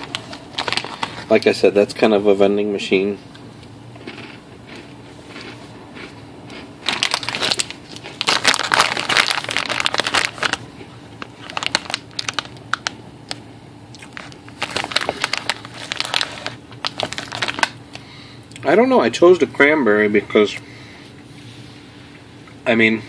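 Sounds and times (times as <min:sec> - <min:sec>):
plastic snack bag crinkling: 0:00.0 - 0:01.6, 0:04.0 - 0:13.4, 0:14.0 - 0:17.8.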